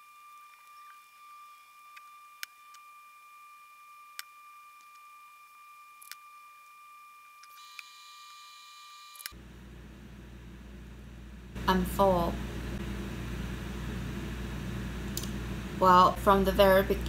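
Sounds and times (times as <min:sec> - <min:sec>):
high-pitched whine: 0:00.0 - 0:09.4.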